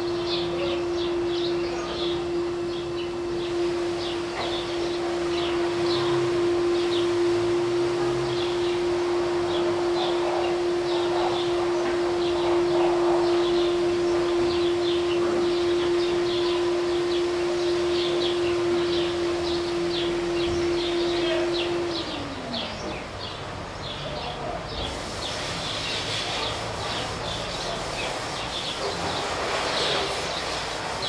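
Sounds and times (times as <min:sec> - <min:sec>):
droning tone sliding down: 0:00.0 - 0:23.0
sparrows chirping: 0:00.0 - 0:31.0.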